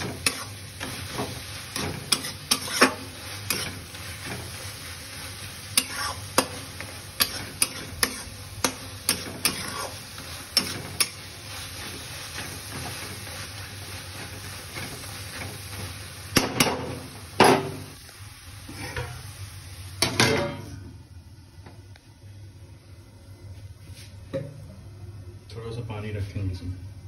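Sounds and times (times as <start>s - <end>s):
vegetables sizzling: 0.0s - 21.0s
spatula scraping metal pan: 1.1s - 4.4s, 5.8s - 6.6s, 7.2s - 10.0s.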